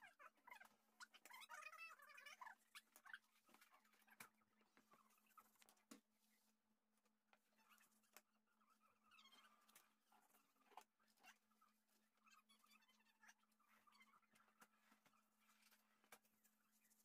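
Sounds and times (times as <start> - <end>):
faint clicks and taps: 0.2 - 6.4, 12.5 - 17.0.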